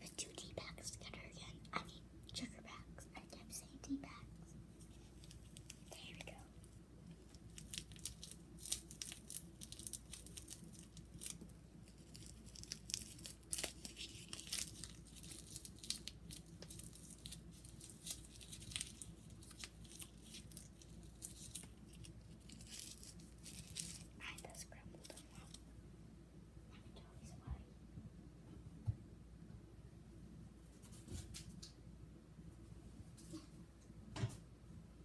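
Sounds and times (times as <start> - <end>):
paper packets crinkling and tearing: 7.3 - 24.1.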